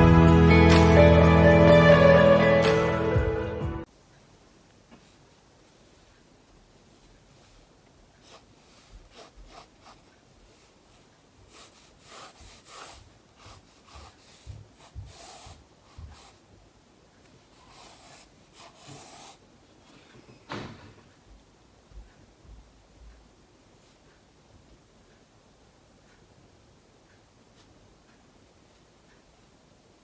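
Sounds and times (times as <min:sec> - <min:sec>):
pencil scratching on paper: 0:08.2 - 0:16.4, 0:17.5 - 0:19.4.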